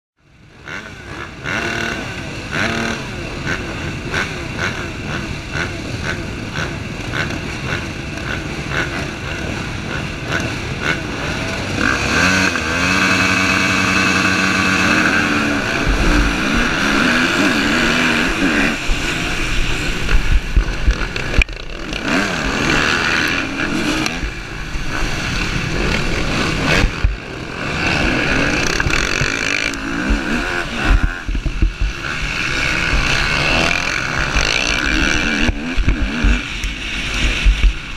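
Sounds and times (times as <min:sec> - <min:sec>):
dirt bike engines revving: 0:00.2 - 0:37.9.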